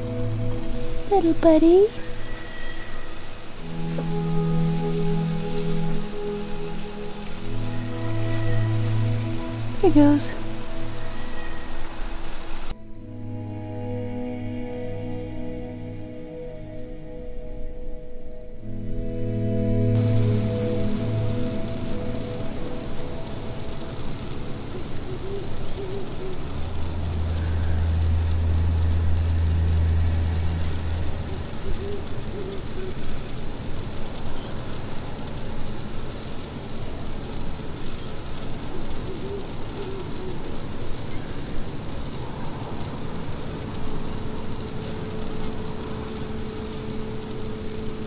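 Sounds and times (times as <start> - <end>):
owl hooting faintly: 0.0 - 12.7, 20.1 - 35.3, 37.8 - 48.0
crickets chirping: 0.0 - 48.0
low rumble: 26.4 - 32.3.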